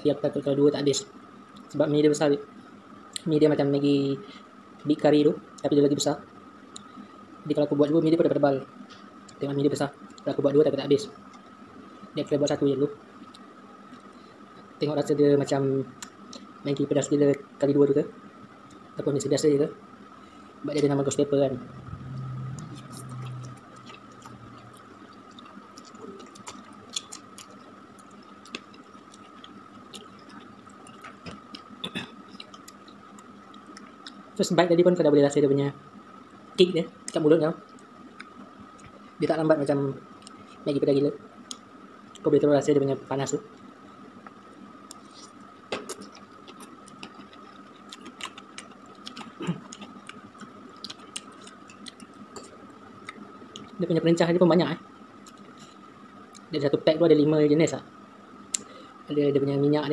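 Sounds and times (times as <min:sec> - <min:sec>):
faint high whine: 0:00.0 - 0:59.9
noodles being chewed: 0:22.6 - 0:34.2, 0:44.9 - 0:53.8.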